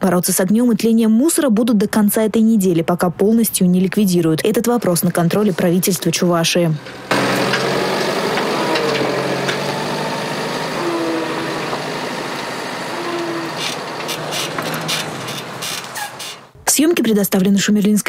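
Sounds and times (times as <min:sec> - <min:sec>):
diesel truck engine running: 0:04.6 - 0:16.6.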